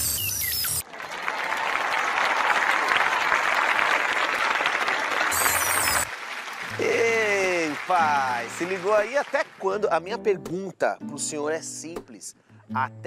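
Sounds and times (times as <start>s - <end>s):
audience applauding: 0.8s - 10.0s.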